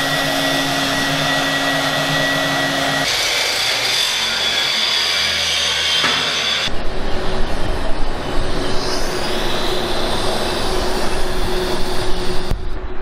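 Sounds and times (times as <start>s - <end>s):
angle grinder grinding steel: 0.0s - 6.7s
band saw cutting steel: 0.0s - 6.7s, 7.6s - 12.5s.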